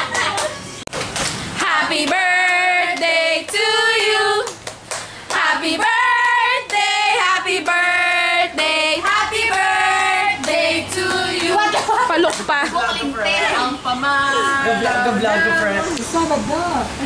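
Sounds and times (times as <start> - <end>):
women singing together: 1.6 - 4.6, 5.3 - 12.8
hand clapping: 4.4 - 5.5.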